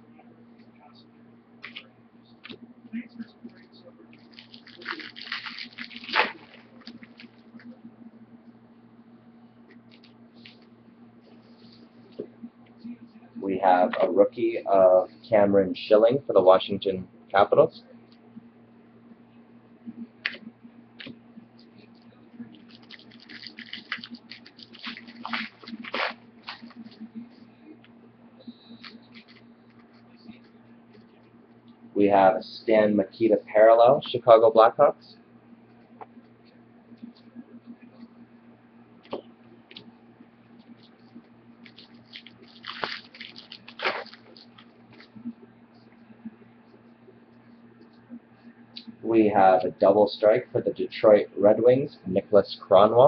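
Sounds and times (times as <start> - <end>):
cards clicking and rustling: 22.6 - 27.1, 41.7 - 45.2.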